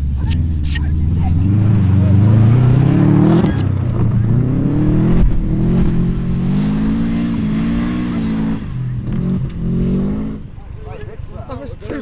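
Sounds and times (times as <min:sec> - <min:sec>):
car engine revving hard: 0:01.0 - 0:10.5.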